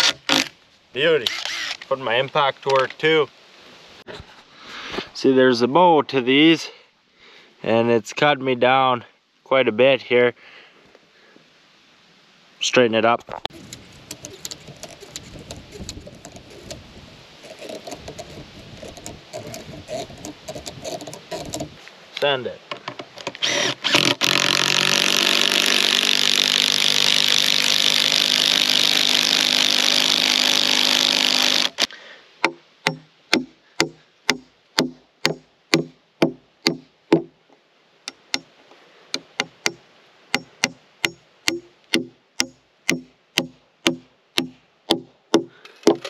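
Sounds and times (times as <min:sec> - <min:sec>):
impact driver running: 0:23.4 - 0:31.9
hammer striking nails into wood: 0:32.4 - 0:37.3, 0:40.4 - 0:46.0.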